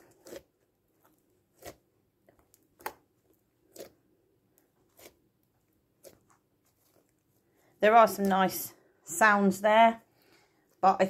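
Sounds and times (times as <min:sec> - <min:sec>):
slime squelching: 0:00.0 - 0:08.6.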